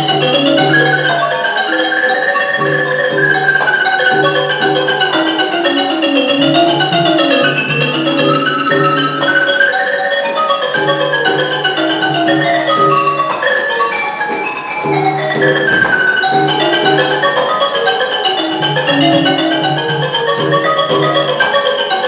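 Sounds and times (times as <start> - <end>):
wooden xylophone fast run: 0.0 - 22.0
hand drum strokes: 15.4 - 18.0.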